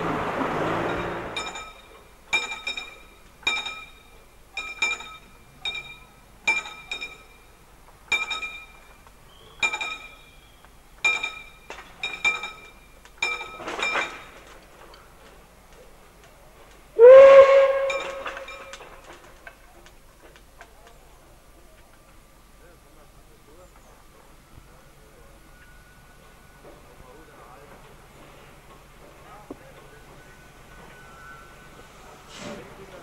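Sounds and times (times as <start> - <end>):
level crossing warning bell: 0.7 - 9.0, 9.6 - 10.4, 11.0 - 14.5, 17.0 - 19.1, 29.8 - 31.8
steam locomotive whistle: 17.0 - 18.7.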